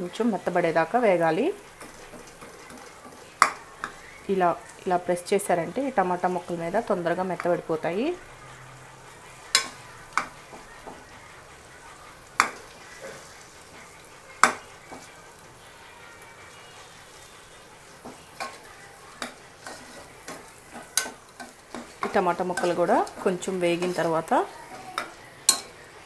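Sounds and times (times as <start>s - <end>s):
food sizzling: 0.0s - 26.0s
spoon knocking against pot: 3.4s - 4.0s, 12.4s - 12.6s, 14.4s - 15.0s
metal spoon scraping in pot: 6.7s - 11.2s, 16.4s - 25.8s.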